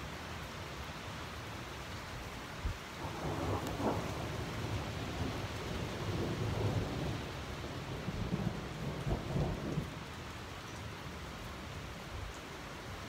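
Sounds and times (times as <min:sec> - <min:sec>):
steady rain: 0:00.0 - 0:13.0
thunder rumbling: 0:03.0 - 0:10.0.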